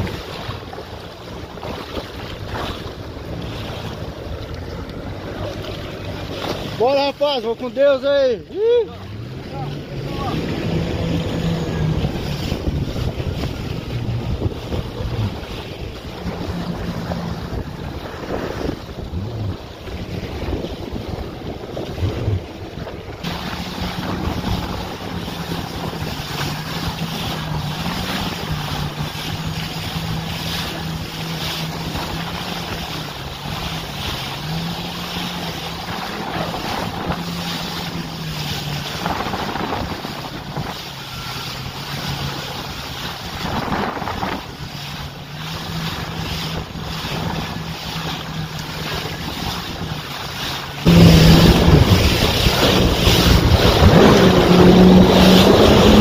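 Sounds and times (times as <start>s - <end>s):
boat engine running: 0.0s - 56.0s
water splashing against hull: 0.0s - 56.0s
wind buffeting microphone: 8.7s - 56.0s.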